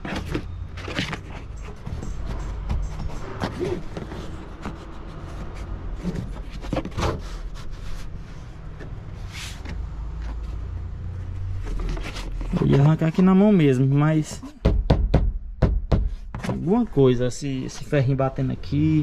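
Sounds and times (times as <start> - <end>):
plastic trim knocks and scrapes: 0.0 - 7.5.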